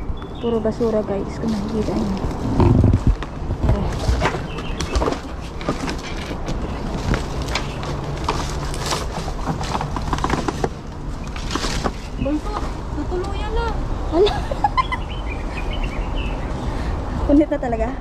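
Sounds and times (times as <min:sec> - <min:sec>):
rustling through leafy undergrowth: 0:00.4 - 0:13.6.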